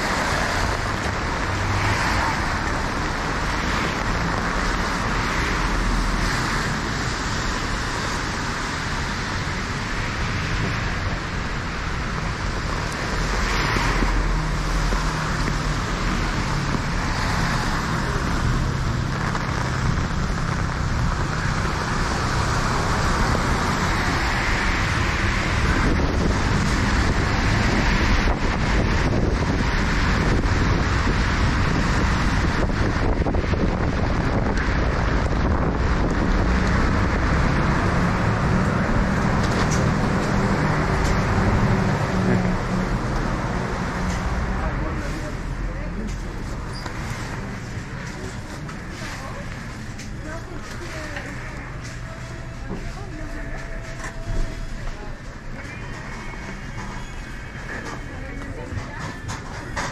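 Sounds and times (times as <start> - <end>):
tyres hissing on wet road: 0.0 - 43.0
low traffic rumble: 0.0 - 59.9
wind on microphone: 24.8 - 41.6.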